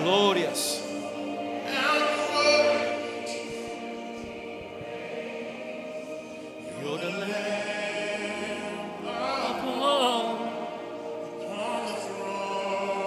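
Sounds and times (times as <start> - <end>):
voices singing worship: 0.0 - 13.0
solo voice singing with vibrato: 7.2 - 10.6.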